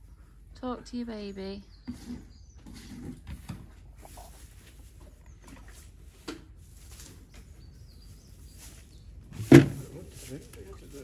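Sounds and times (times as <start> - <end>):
rustling in straw: 4.0 - 11.0.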